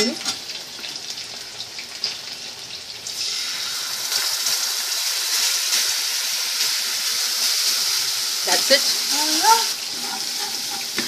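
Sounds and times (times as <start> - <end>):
masala sizzling in hot oil: 0.0 - 11.0.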